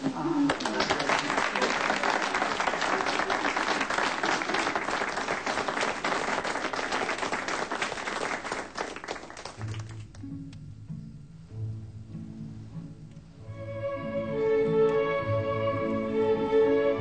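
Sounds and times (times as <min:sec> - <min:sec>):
crowd applauding: 0:00.0 - 0:10.1
slow bowed-string music: 0:09.6 - 0:17.0.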